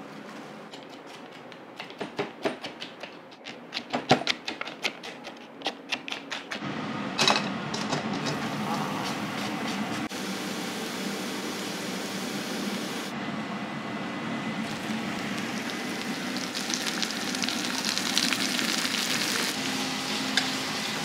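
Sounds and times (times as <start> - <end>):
garlic sizzling in hot oil: 10.2 - 13.1, 14.6 - 21.0.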